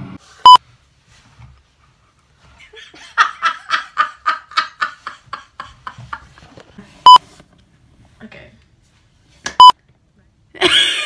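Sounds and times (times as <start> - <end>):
woman laughing hard: 2.7 - 6.4, 10.6 - 11.0.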